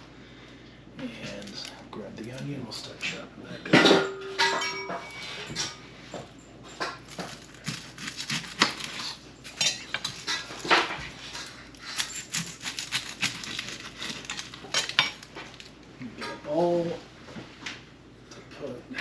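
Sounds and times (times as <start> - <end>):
knife scrape: 7.2 - 15.2.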